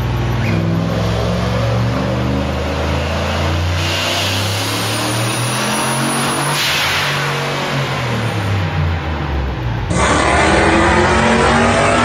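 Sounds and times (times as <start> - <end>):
car engine revving under load: 7.4 - 12.0.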